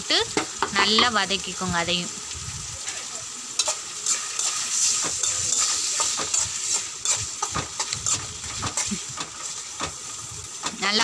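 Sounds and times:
food sizzling in oil: 0:00.0 - 0:11.0
spatula scraping and clinking on pan: 0:03.6 - 0:09.6.

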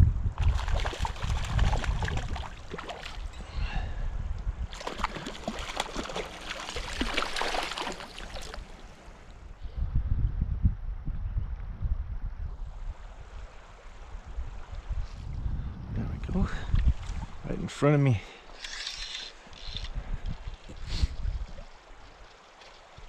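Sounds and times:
wind rumbling on microphone: 0:00.0 - 0:18.2, 0:18.9 - 0:23.0
fish splashing in water: 0:04.7 - 0:08.9.

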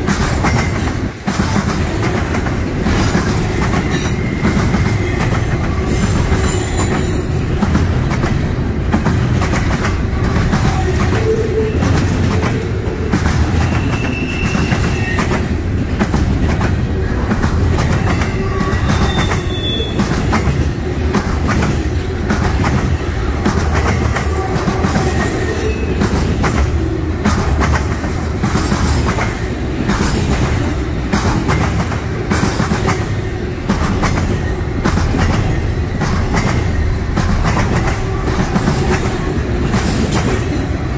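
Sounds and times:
freight train rumbling past: 0:00.0 - 0:40.9
steel wheels clattering on rails: 0:00.0 - 0:40.9
high wheel squeals: 0:13.6 - 0:15.4, 0:18.0 - 0:20.0.

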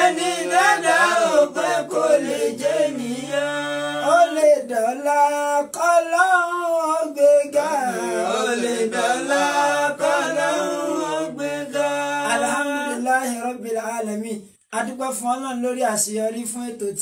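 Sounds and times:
men chanting unaccompanied: 0:00.0 - 0:13.4.

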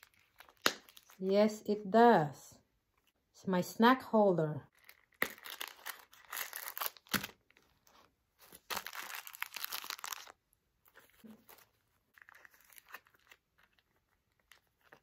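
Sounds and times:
plastic wrapper crinkling: 0:00.0 - 0:01.2, 0:04.7 - 0:15.0.

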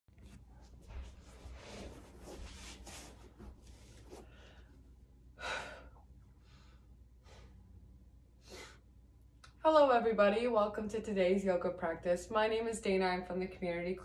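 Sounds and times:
clothing rustling on yoga mat: 0:00.1 - 0:04.7
person breathing: 0:04.1 - 0:07.8, 0:08.4 - 0:08.8.

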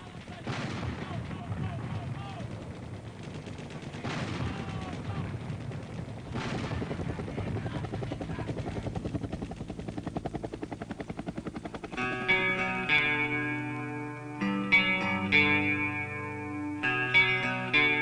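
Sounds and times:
sharp bangs: 0:00.0 - 0:08.1
rapid steady pulsing: 0:00.0 - 0:14.4.

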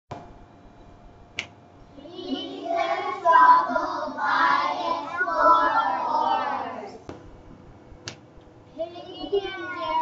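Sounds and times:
children's sing-song voices: 0:01.9 - 0:07.1.

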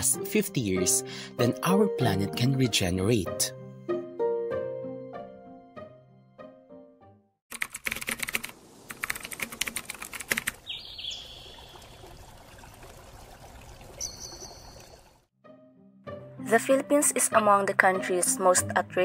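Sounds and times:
typewriter keys clicking: 0:07.5 - 0:10.6.

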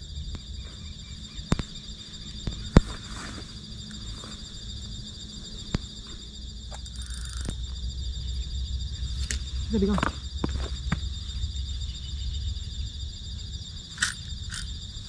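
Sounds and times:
insects chirring: 0:00.0 - 0:15.0
sharp clicks: 0:06.7 - 0:07.6, 0:13.9 - 0:14.8.

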